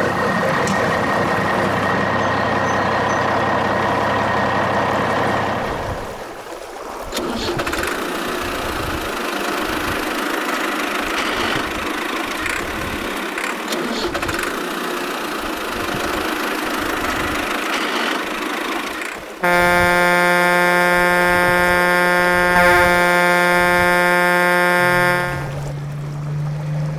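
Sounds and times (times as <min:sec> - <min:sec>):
vehicle engine running: 0:08.0 - 0:26.9
loud buzzing tone: 0:19.4 - 0:25.7.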